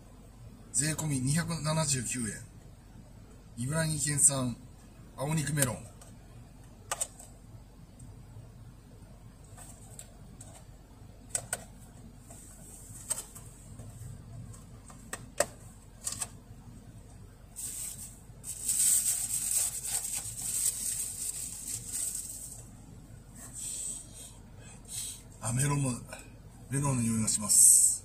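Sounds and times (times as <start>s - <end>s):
plastic crinkling: 17.6s - 22.6s.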